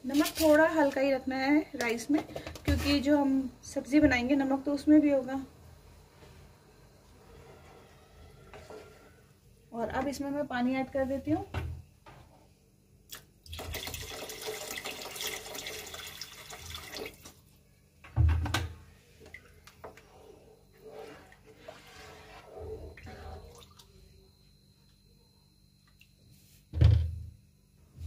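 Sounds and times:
water pouring into a pot: 13.5s - 17.4s
wooden spoon stirring rice and water: 19.8s - 23.7s.

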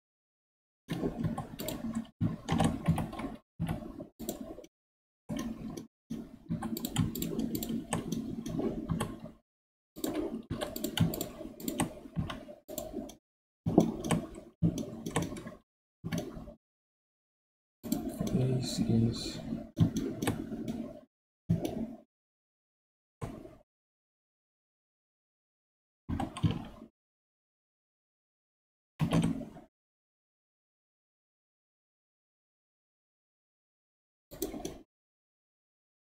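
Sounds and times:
keyboard keys clicking: 6.6s - 9.2s.

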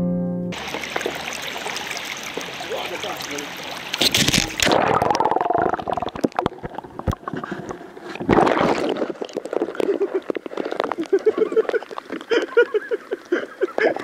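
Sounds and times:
water rushing over microphone: 0.6s - 14.0s.

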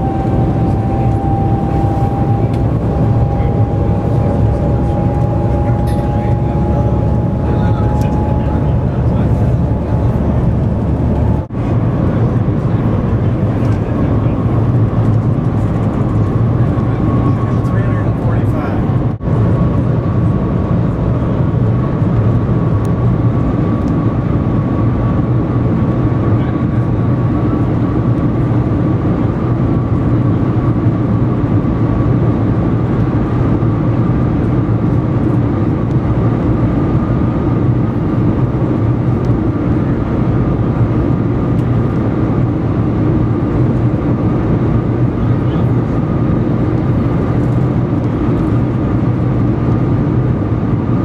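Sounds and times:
thin rising whine: 0.0s - 11.5s
train cabin rumble: 0.0s - 19.2s.

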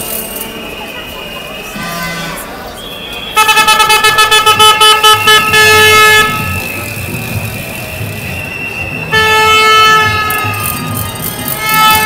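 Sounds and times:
loud horn blasts: 0.0s - 8.0s, 9.0s - 12.0s.

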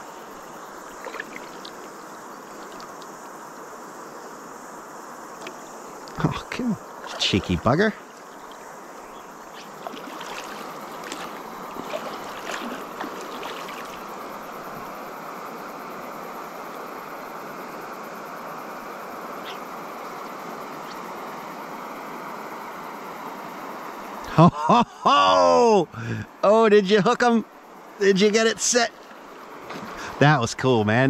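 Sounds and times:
river water rushing: 0.0s - 4.0s, 4.9s - 24.2s.

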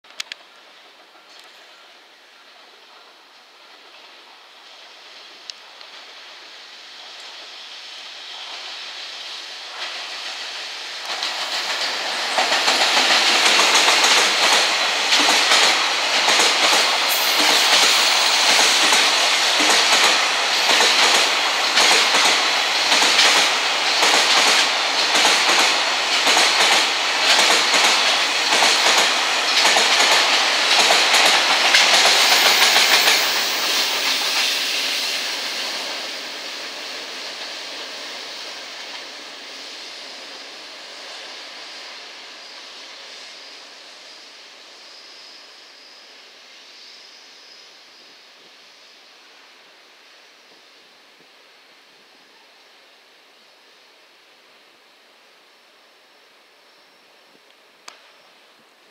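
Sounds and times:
freight train wheels clattering: 11.0s - 39.3s.

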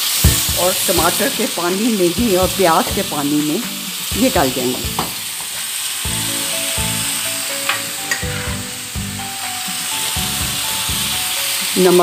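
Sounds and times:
vegetables sizzling in oil: 0.0s - 12.0s
spatula knocking on pot: 4.1s - 5.6s.

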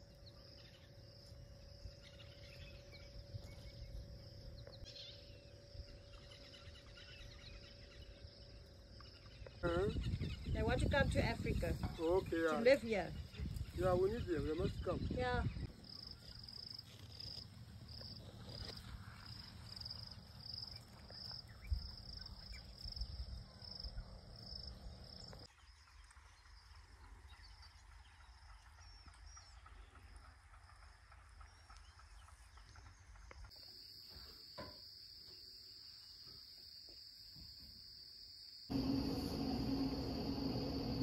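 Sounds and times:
crickets chirping: 0.0s - 29.5s, 30.1s - 41.0s
steady high trill: 38.7s - 41.0s.

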